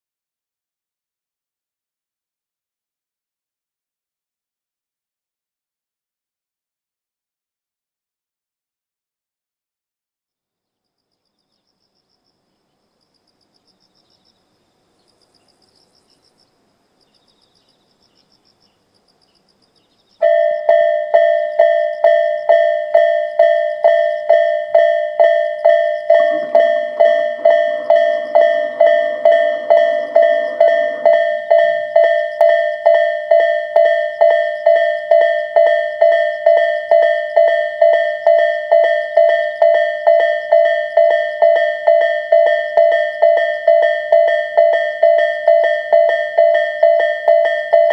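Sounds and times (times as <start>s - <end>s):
faint high chirping: 10.7s - 47.9s
low mechanical noise: 11.4s - 47.9s
level crossing warning bell: 20.2s - 47.9s.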